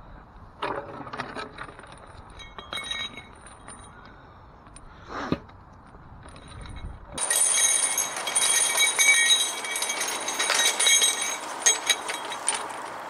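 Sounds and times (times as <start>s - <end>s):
metal objects clinking: 1.2s - 4.0s, 6.3s - 13.0s.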